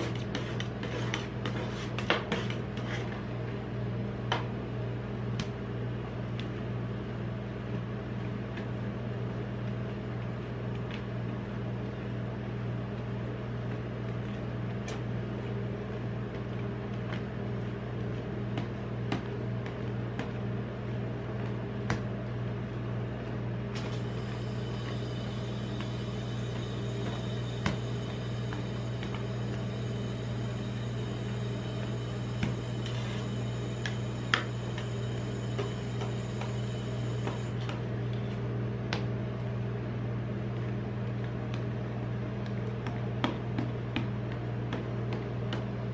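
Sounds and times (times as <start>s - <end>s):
low machine hum: 0.0s - 45.9s.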